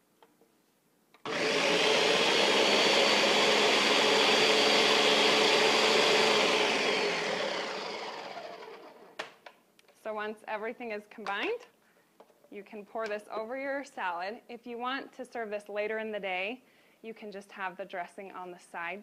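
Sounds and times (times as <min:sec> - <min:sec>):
blender motor running: 0:01.2 - 0:09.2.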